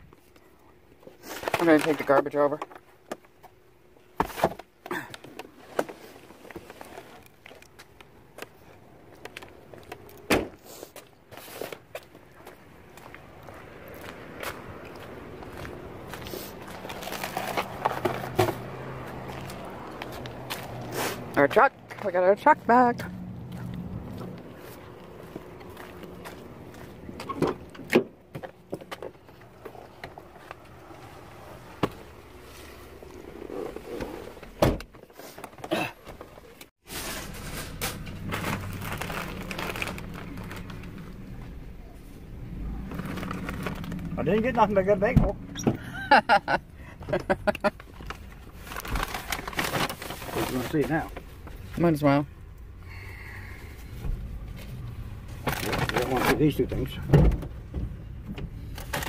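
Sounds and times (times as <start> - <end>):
footsteps on pavement: 10.9 - 17.0, 18.5 - 27.3.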